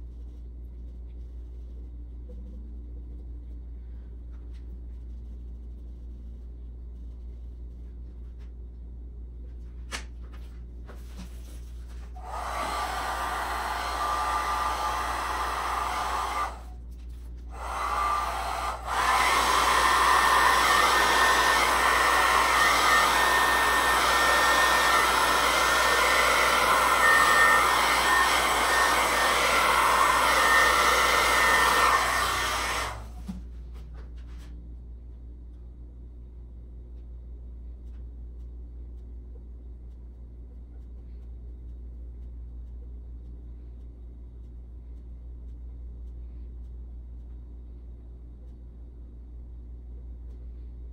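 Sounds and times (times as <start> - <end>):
hair dryer blowing: 12.2 - 16.8, 17.5 - 33.4.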